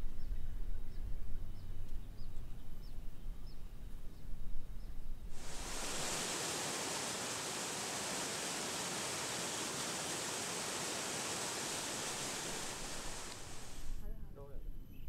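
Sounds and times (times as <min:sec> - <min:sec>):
river rushing over rocks: 0:05.4 - 0:14.0.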